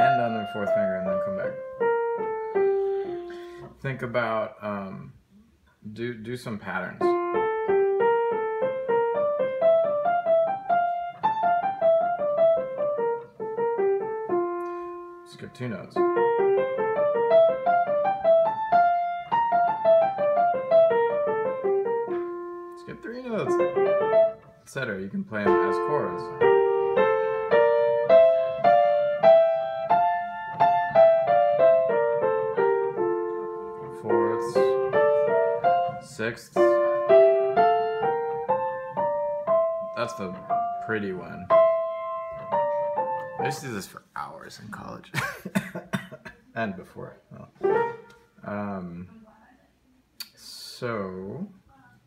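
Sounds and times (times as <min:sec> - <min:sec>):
piano playing a scale: 0:00.0 - 0:04.6, 0:06.2 - 0:44.4, 0:47.6 - 0:48.8.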